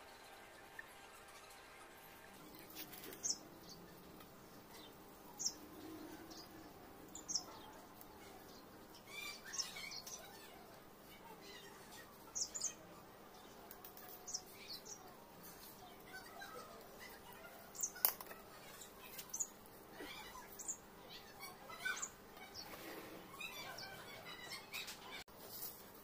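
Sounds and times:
small birds chirping: 0:00.1 - 0:26.0.

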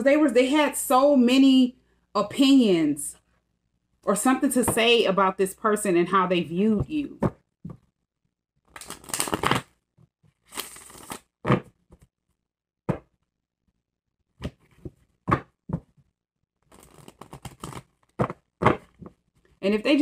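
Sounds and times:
cards being shuffled: 0:08.7 - 0:09.7, 0:10.4 - 0:12.0, 0:16.7 - 0:19.2.

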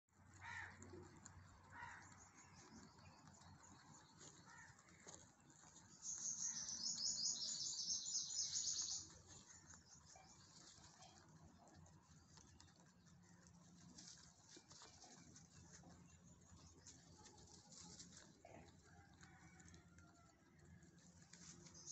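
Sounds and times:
small bird twittering: 0:06.0 - 0:09.1.

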